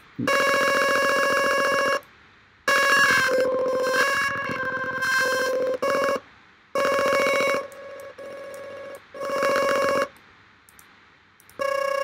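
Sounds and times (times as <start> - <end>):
quiet held synthesizer tone: 0.0 - 10.2
buzzy warbling synthesizer notes: 2.7 - 6.2
faint clicks: 9.5 - 11.6.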